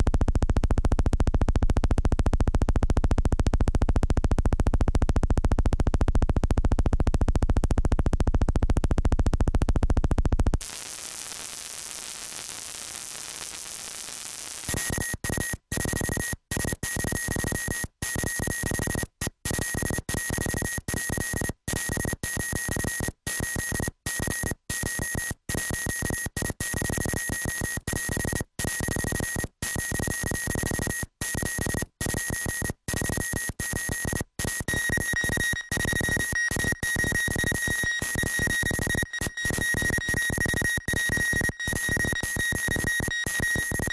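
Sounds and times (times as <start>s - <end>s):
steady high-pitched tones: 31.4s - 43.9s.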